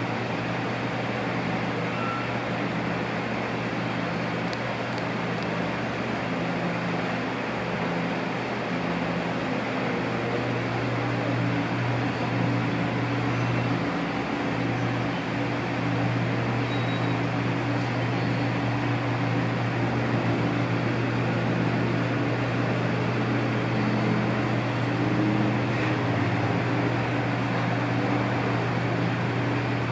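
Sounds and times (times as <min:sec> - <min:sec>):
machinery hum: 0:00.0 - 0:29.9.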